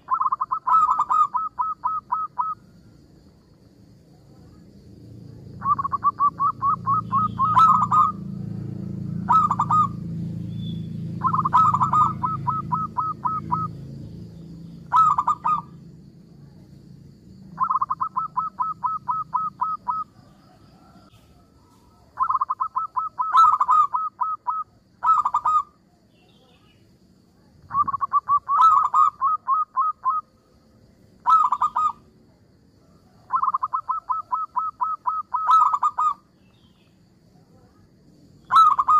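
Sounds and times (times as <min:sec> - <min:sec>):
dove cooing: 0:00.0 - 0:02.7, 0:05.5 - 0:08.4, 0:09.0 - 0:10.2, 0:11.1 - 0:13.9, 0:14.8 - 0:15.8, 0:17.5 - 0:21.4, 0:22.1 - 0:25.8, 0:27.6 - 0:30.3, 0:31.2 - 0:32.1, 0:33.1 - 0:36.3, 0:38.5 - 0:38.9.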